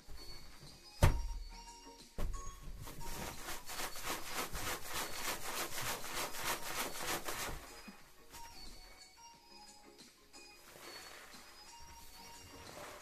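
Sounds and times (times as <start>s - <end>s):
balloon thump: 1.0s - 1.5s, 2.2s - 3.0s
rubbing on balloon: 2.8s - 8.6s.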